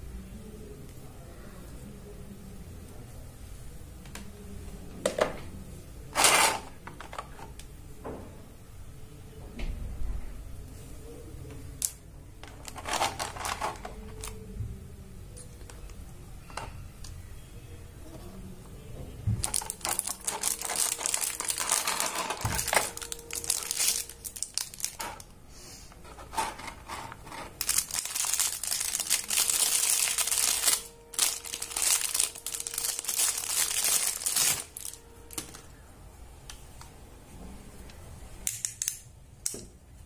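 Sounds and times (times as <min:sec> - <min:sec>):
plastic film crinkling: 0:12.4 - 0:14.4, 0:19.4 - 0:25.3, 0:26.2 - 0:35.6.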